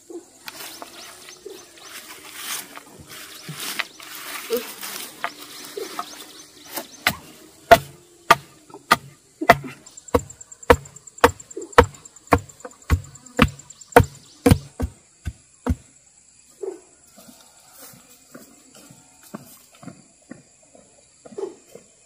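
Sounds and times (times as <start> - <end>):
blade chopping bamboo: 6.7 - 15.8.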